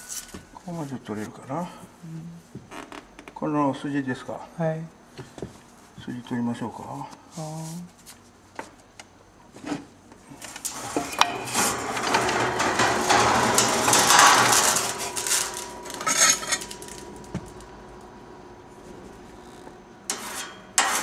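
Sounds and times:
file scraping steel blade: 16.0 - 16.7, 20.1 - 21.0.

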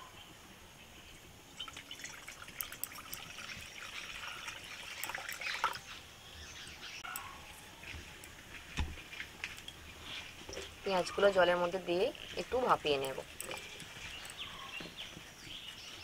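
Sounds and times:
water pouring into a pan: 1.6 - 5.9.

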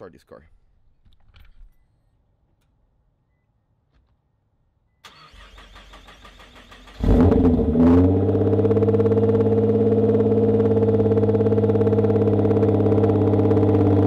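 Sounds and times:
engine starter cranking: 5.0 - 7.4
car engine revving and idling: 6.1 - 14.0.

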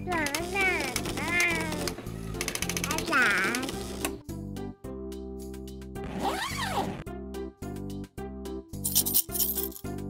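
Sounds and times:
background music: 0.0 - 10.0
zipper being pulled: 6.0 - 7.0.

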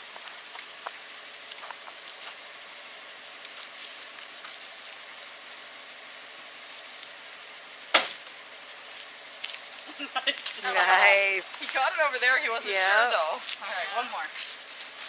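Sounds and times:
outdoor background hiss: 0.0 - 15.0
sharp knock: 7.9 - 8.3.

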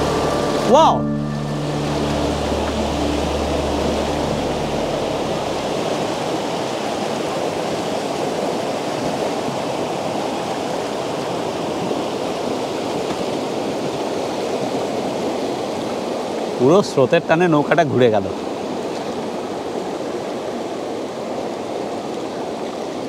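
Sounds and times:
low hum: 0.0 - 7.2
rushing white water: 0.0 - 23.0.

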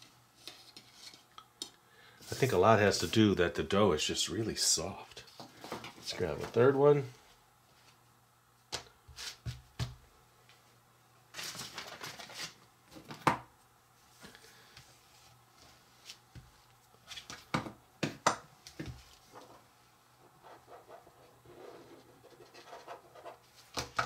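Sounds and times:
rustling scrape: 20.4 - 23.7.

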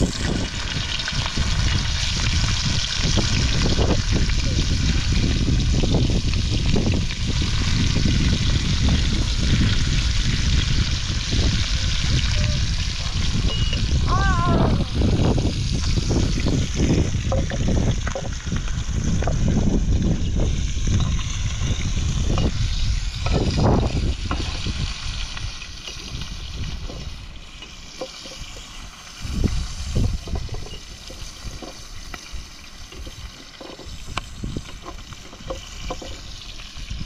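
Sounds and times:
low rumble: 0.0 - 27.6
running water: 0.0 - 37.0.

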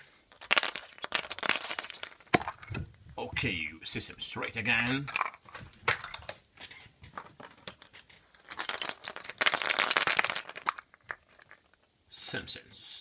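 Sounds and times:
plastic capsules clattering: 0.3 - 2.9, 4.7 - 11.9.

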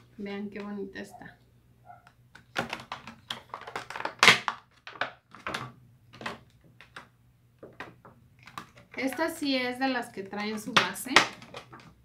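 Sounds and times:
plastic bag crinkling: 2.4 - 7.0, 8.3 - 12.0.

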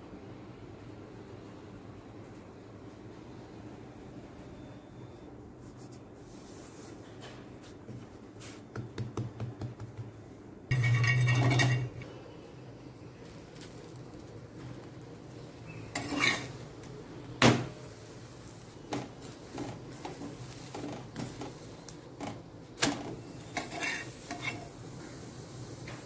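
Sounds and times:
steady low sizzle: 10.6 - 26.0
metal utensils scraping a pan: 10.7 - 12.1, 15.7 - 16.6, 23.3 - 24.8.

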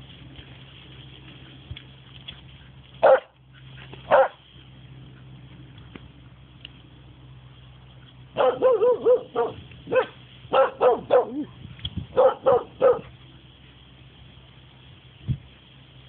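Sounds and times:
dog barking: 3.0 - 3.4, 4.1 - 4.4, 8.4 - 11.5, 12.1 - 13.1.

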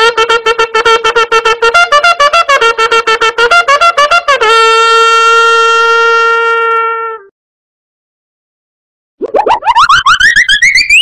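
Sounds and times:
horn-like wind instrument notes: 0.0 - 7.3.

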